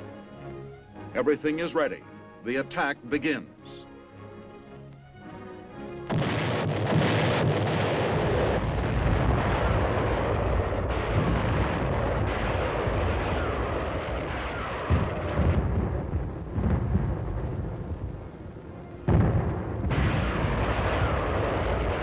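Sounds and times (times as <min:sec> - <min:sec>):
heavy explosion booms: 0:06.1 - 0:18.3, 0:19.1 - 0:22.0
artillery fire rumble: 0:06.1 - 0:18.4, 0:19.1 - 0:22.0.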